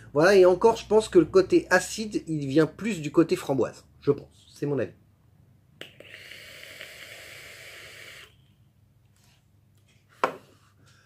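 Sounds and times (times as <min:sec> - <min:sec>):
hiss of air and vapour: 0:05.8 - 0:08.4.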